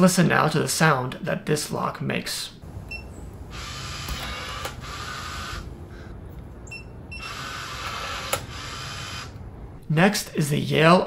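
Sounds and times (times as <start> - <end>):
lock motor whirring: 2.7 - 5.8, 6.7 - 9.5.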